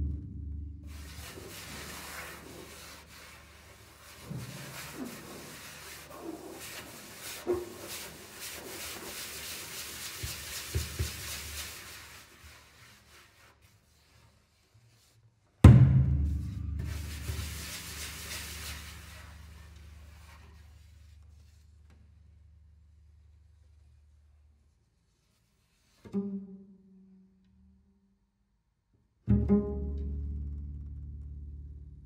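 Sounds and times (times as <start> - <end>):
loud low hit on double bass: 0.0 - 1.2, 15.6 - 17.6
fingertips rubbing double bass body: 0.0 - 11.9, 15.6 - 22.1.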